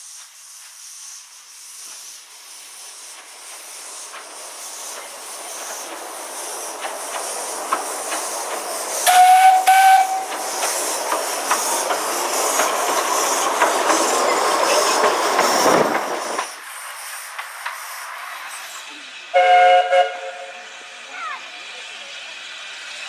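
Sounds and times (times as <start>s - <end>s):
hiss of steam: 0.0s - 23.0s
train wheels clicking: 0.0s - 23.0s
steam whistle blasts: 9.0s - 10.4s, 19.3s - 20.7s.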